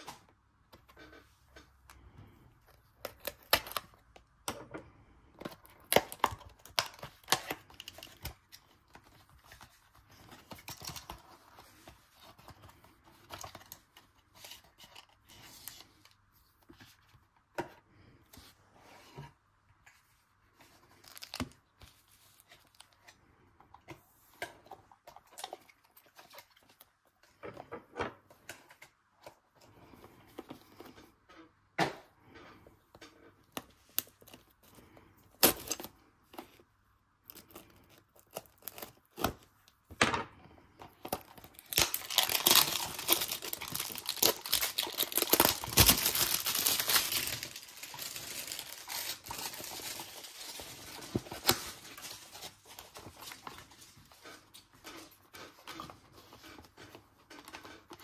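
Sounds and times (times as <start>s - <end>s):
foil packs crinkling: 41.0s - 54.2s.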